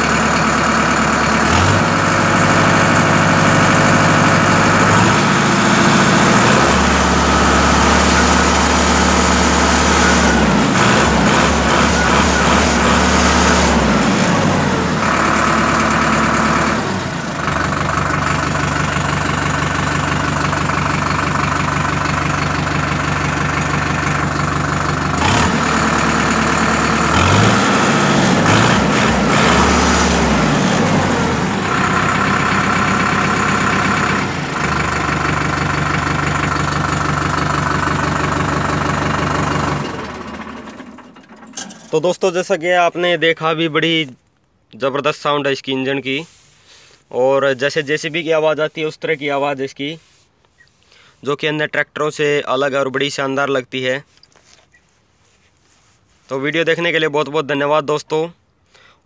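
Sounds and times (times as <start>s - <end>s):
tractor diesel engine revving: 0.0s - 41.4s.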